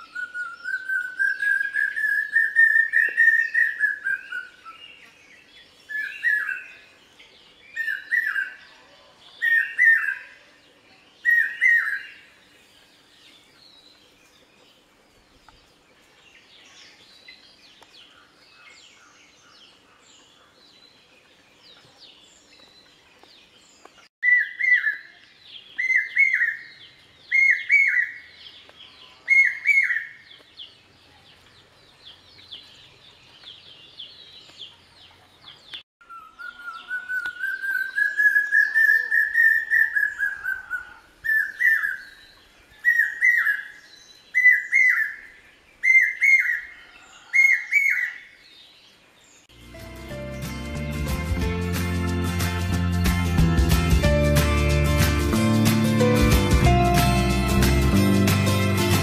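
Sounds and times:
cuckoo whistled calls: 0:00.0 - 0:04.9, 0:05.8 - 0:06.8, 0:07.7 - 0:08.6, 0:24.2 - 0:28.3, 0:29.2 - 0:30.2, 0:36.0 - 0:48.3.

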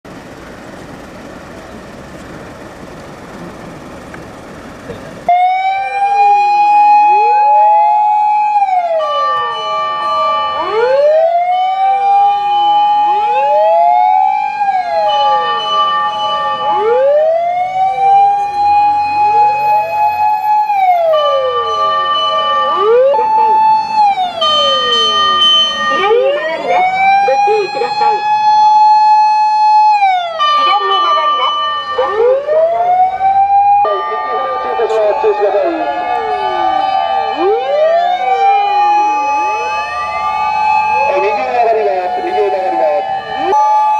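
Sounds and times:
fire engine sirens wailing: 0:00.1 - 0:43.9
steady high tone: 0:08.6 - 0:28.8, 0:30.4 - 0:43.9.

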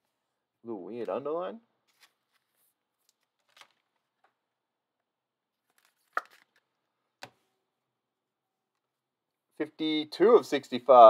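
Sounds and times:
cards rustling and clicking: 0:01.8 - 0:04.4, 0:05.6 - 0:07.5.

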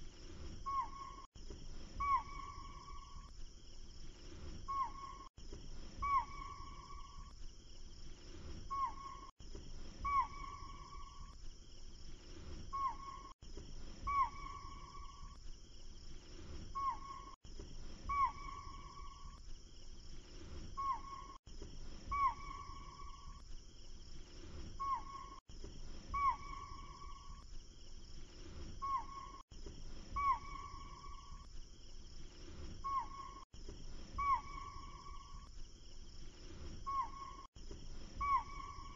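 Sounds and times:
animal calls: 0:00.6 - 0:01.3, 0:01.9 - 0:03.3, 0:04.7 - 0:05.3, 0:06.0 - 0:07.3, 0:08.7 - 0:09.3, 0:10.0 - 0:11.4, 0:12.7 - 0:13.3, 0:14.0 - 0:15.4, 0:16.8 - 0:17.4, 0:18.0 - 0:19.4, 0:20.8 - 0:21.4, 0:22.0 - 0:23.4, 0:24.8 - 0:25.4, 0:26.0 - 0:27.4, 0:28.8 - 0:29.4, 0:30.1 - 0:31.5, 0:32.8 - 0:33.4, 0:34.1 - 0:35.5, 0:36.9 - 0:37.5, 0:38.1 - 0:38.9.

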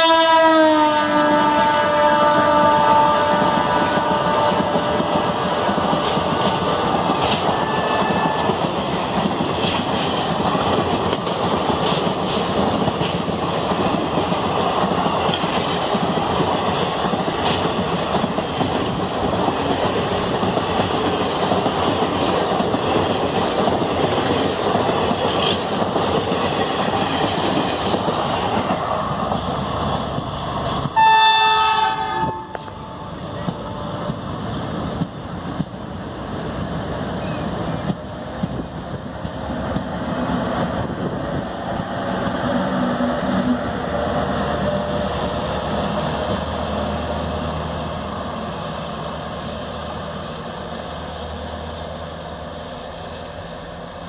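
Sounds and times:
train horn: 0:00.0 - 0:08.7, 0:30.9 - 0:34.2
train wheels roaring on rails: 0:00.0 - 0:54.0.

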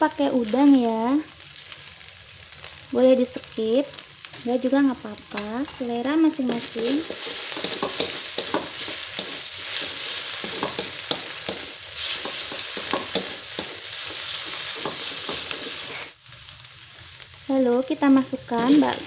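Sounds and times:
food sizzling in hot oil: 0:00.0 - 0:19.0
spatula scraping a pan: 0:05.6 - 0:16.1.

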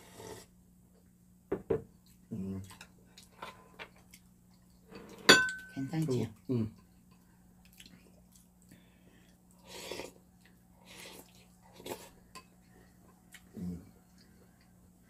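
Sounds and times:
slurping soup: 0:00.0 - 0:00.5, 0:09.6 - 0:10.2
faint steady hum: 0:00.0 - 0:15.0.

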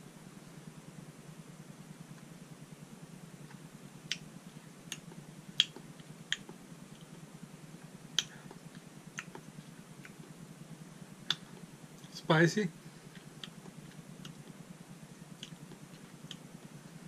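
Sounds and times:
steady low hum: 0:00.0 - 0:17.0
mouth clicks and lip smacks: 0:03.4 - 0:04.3, 0:04.9 - 0:07.2, 0:08.1 - 0:10.3, 0:11.2 - 0:12.2, 0:13.1 - 0:14.6, 0:15.2 - 0:16.7.

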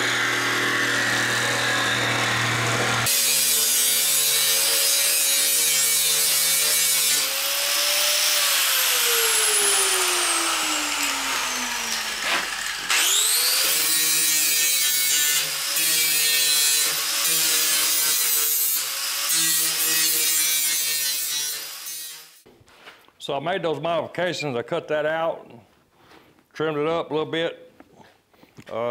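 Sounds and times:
power saw cutting fiberglass: 0:00.0 - 0:22.4.

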